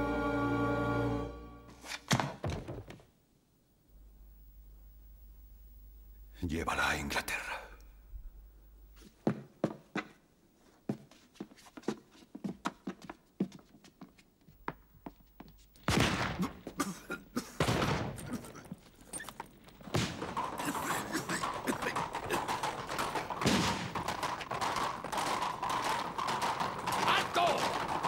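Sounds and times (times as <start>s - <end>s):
pistol gunshots: 15.8s - 16.8s, 17.6s - 18.5s, 19.8s - 20.6s, 23.3s - 24.8s
fight commotion: 19.8s - 28.0s.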